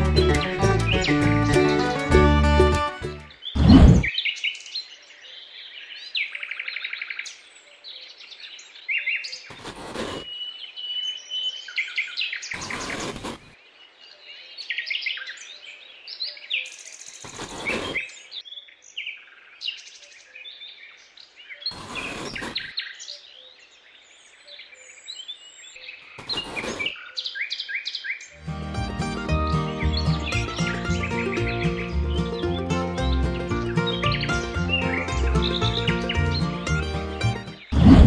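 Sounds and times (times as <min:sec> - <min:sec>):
birds chirping and trilling: 0:00.0 - 0:38.0
wooden posts scraping into sand: 0:03.6 - 0:04.1, 0:09.5 - 0:10.3, 0:12.6 - 0:13.6, 0:17.2 - 0:18.0, 0:21.7 - 0:22.7, 0:26.2 - 0:26.9, 0:37.6 - 0:38.0.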